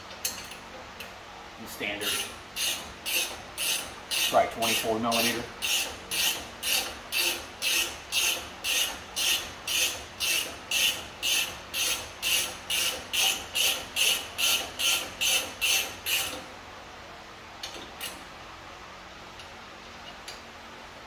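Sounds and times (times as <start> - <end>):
hand ratchet rasping: 2.0 - 16.4.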